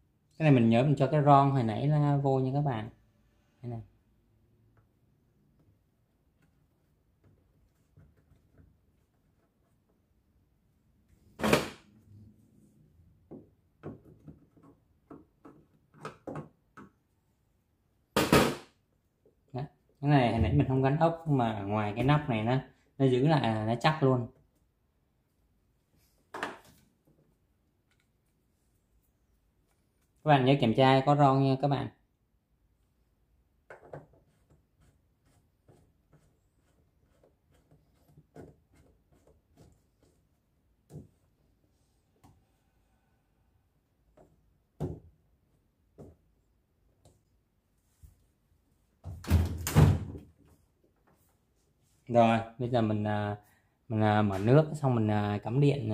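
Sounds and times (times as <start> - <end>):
plastic clicks and knocks: 13.2 - 17.0, 33.6 - 34.2.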